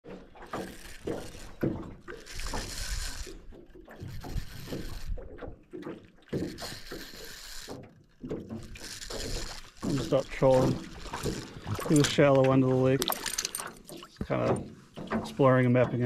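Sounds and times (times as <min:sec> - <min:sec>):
water splashing: 0:00.0 - 0:16.0
fishing reel rattling: 0:00.1 - 0:14.6.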